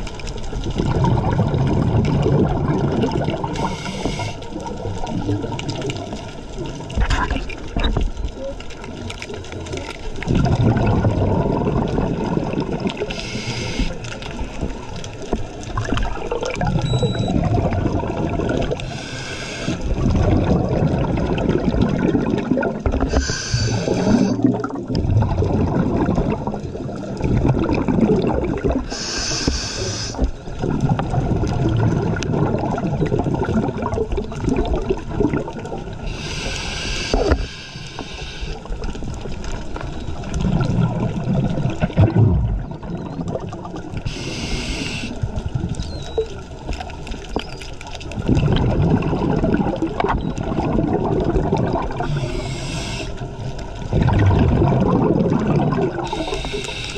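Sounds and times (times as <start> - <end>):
gurgle of exhaled bubbles: 0.0 - 56.9
regulator hiss on inhale: 3.6 - 4.6, 13.1 - 14.1, 18.8 - 19.9, 23.1 - 24.4, 28.9 - 30.3, 36.0 - 38.8, 44.0 - 45.2, 52.0 - 53.2, 56.0 - 56.9.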